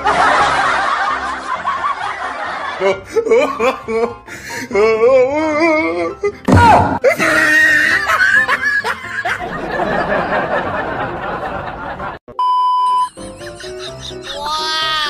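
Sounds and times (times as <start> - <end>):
snickering laughter: 7.1 - 12.2, 13.1 - 15.0
short electronic beep: 12.3 - 13.1.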